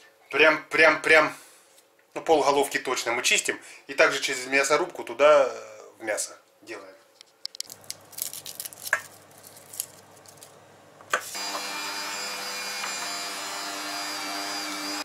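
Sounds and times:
garlic cloves rustling: 0:07.4 - 0:11.4
meat grinder motor humming: 0:11.2 - 0:15.0.

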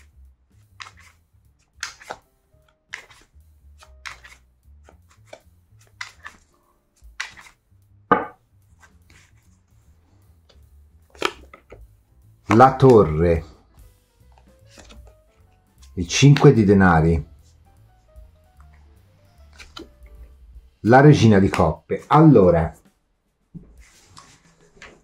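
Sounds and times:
cards being shuffled: 0:00.0 - 0:07.6, 0:08.6 - 0:13.4, 0:14.2 - 0:17.3, 0:18.6 - 0:20.1, 0:23.6 - 0:25.0
cards slapping together: 0:00.7 - 0:09.4, 0:10.5 - 0:11.9, 0:12.5 - 0:13.2, 0:14.3 - 0:16.8, 0:19.4 - 0:20.1.

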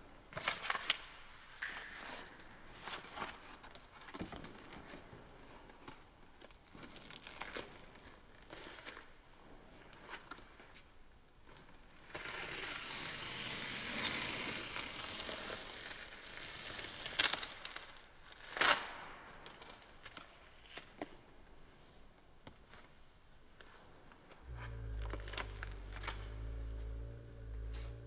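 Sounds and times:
masking tape peeling off paper: 0:00.2 - 0:28.0.

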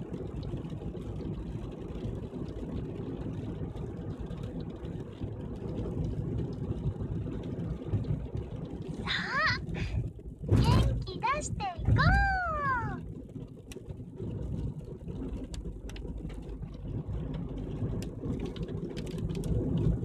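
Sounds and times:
car engine and road rumble: 0:00.0 - 0:20.0
person speaking: 0:10.6 - 0:13.0.

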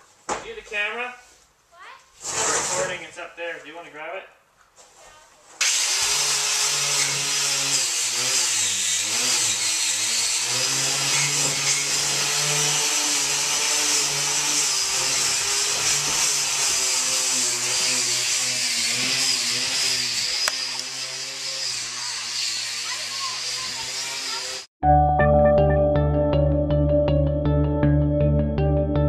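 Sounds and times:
power sander grinding: 0:05.6 - 0:24.7.

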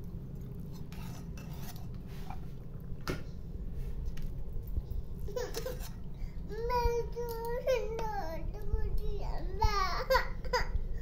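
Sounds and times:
low steady rumble: 0:00.0 - 0:11.0
metal spoon scraping a pot: 0:00.7 - 0:02.4, 0:05.5 - 0:06.1.

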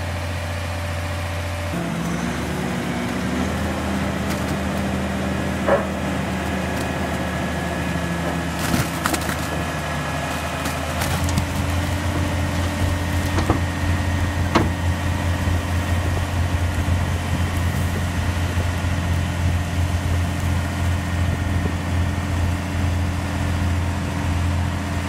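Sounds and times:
diesel lorry engine running: 0:00.0 - 0:25.0.

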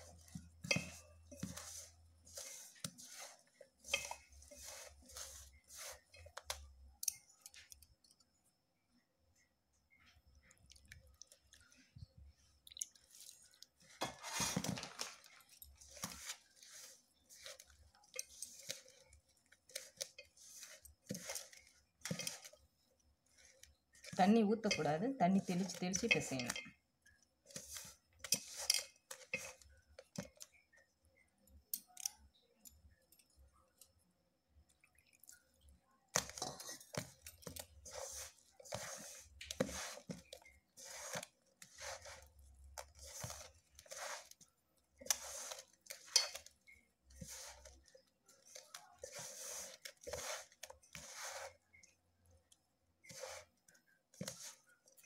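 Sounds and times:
hand squishing dough in bowl: 0:00.0 - 0:08.1, 0:10.3 - 0:30.7, 0:34.6 - 0:55.0.

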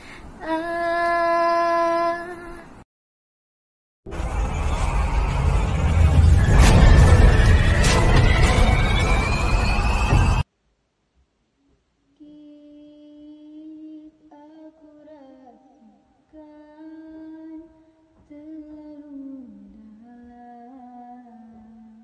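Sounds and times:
breaths: 0:00.0 - 0:00.4.

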